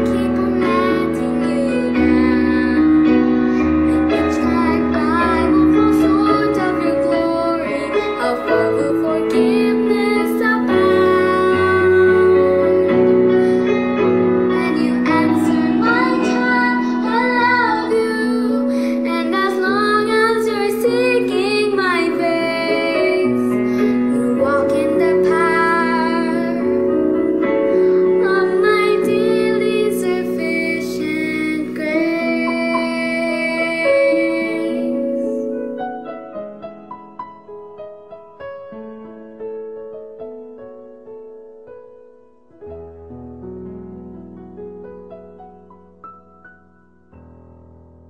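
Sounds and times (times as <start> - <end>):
girl singing a slow song: 0.0 - 35.8
piano accompaniment: 0.0 - 48.0.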